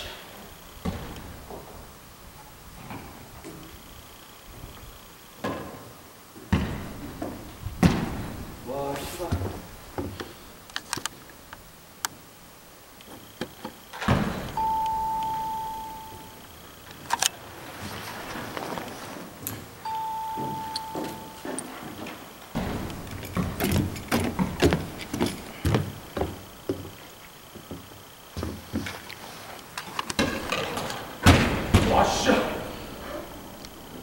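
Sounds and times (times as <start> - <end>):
heavy thump: 6.5 - 8.5, 22.6 - 26.4, 31.2 - 32.2
long steady beeps: 14.4 - 17.0, 19.8 - 24.3.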